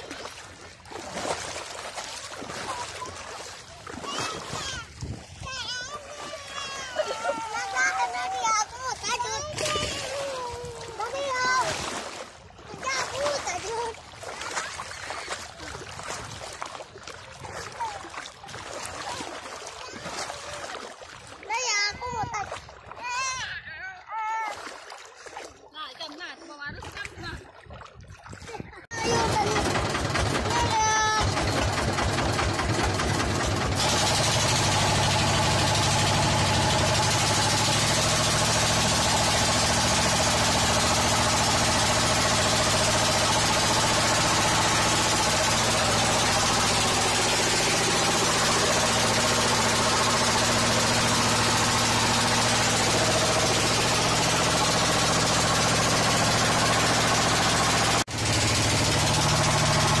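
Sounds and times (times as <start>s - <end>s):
boat engine running: 0.0s - 23.4s, 24.6s - 60.0s.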